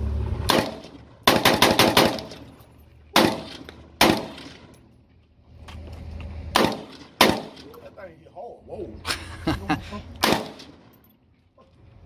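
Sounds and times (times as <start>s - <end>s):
rifle shots with echo: 0.5s - 2.5s, 3.1s - 4.7s, 6.5s - 7.7s, 10.2s - 10.9s.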